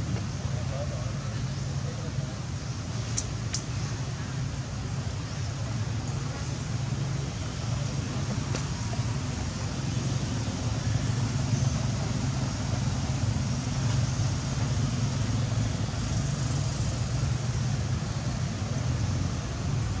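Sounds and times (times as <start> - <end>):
steady hiss: 0.0 - 20.0.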